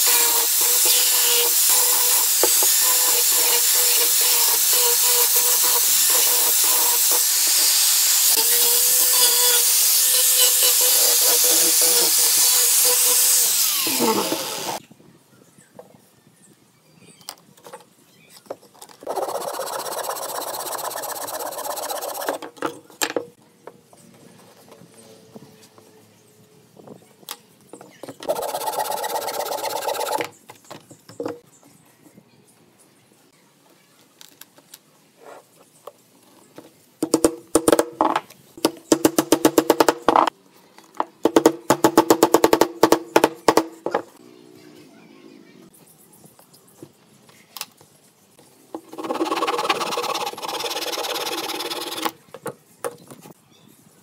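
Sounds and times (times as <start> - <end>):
handsaw cutting wood: 0.0 - 14.8, 19.1 - 22.4, 28.2 - 30.3, 48.8 - 52.1.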